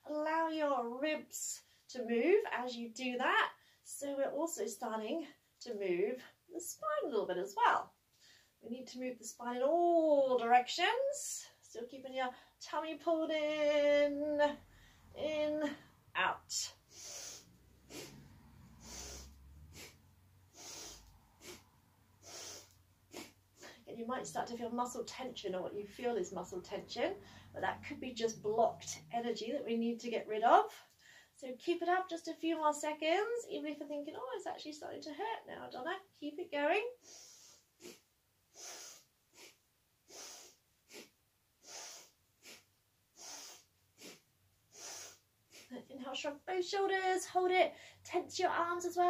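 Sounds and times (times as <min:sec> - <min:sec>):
woman breathing deeply: 0:14.7 - 0:15.2, 0:16.8 - 0:23.9, 0:27.2 - 0:27.6, 0:37.0 - 0:45.7.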